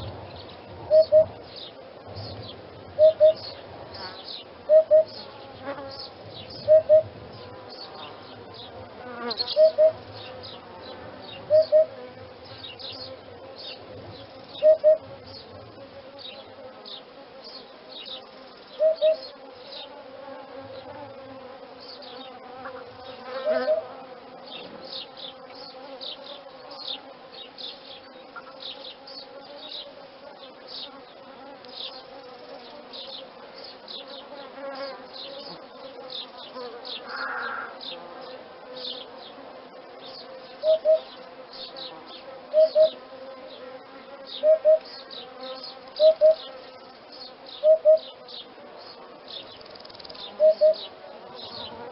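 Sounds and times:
insects chirping and buzzing: 0.0s - 51.9s
hoopoe calling two-note hoop: 3.0s - 3.4s, 4.7s - 5.2s, 6.7s - 7.1s, 11.5s - 12.0s, 14.6s - 15.1s.

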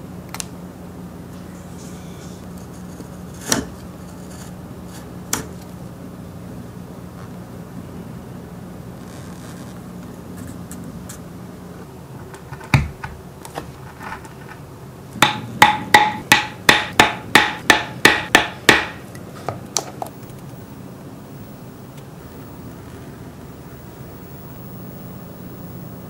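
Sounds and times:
mallet striking metal punch: 15.2s - 19.0s.

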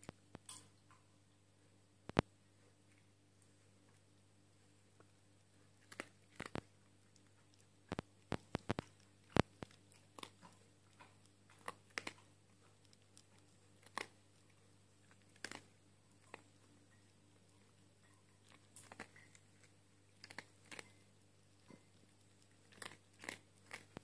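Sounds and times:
dog crunching dry kibble: 4.9s - 24.0s.

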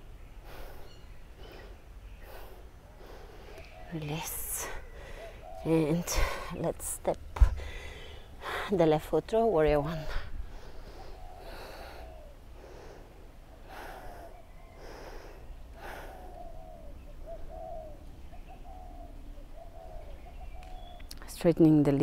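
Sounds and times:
person breathing deeply: 0.4s - 3.6s, 4.8s - 5.6s, 7.5s - 8.7s, 10.1s - 16.8s.

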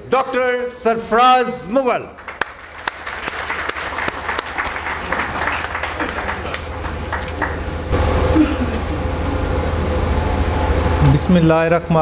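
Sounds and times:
low hum through sound system: 0.0s - 12.0s
audience applauding: 2.2s - 8.0s.

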